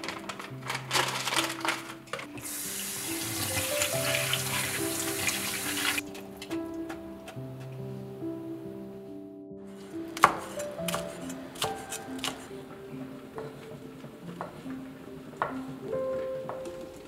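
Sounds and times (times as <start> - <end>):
background music: 0.0 - 17.0
tap water running into strainer: 2.4 - 6.0.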